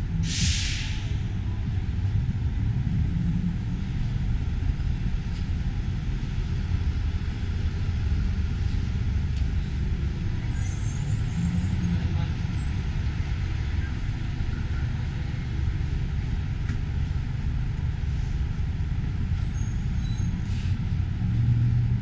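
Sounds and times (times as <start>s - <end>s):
low rumble of traffic: 0.0s - 22.0s
high squeal: 19.4s - 20.8s.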